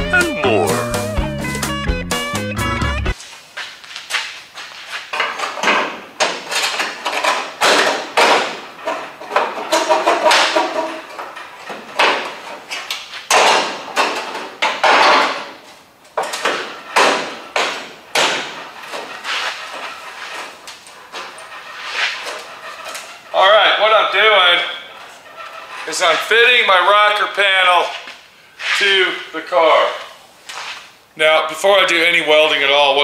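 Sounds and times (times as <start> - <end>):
sheet metal scraping and knocking: 5.0 - 15.6, 16.2 - 24.1.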